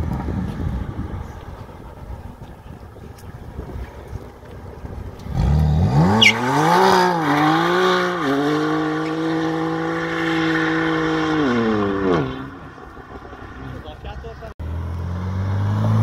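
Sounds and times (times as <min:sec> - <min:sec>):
car engine revving hard: 0:05.3 - 0:12.8, 0:14.6 - 0:16.0.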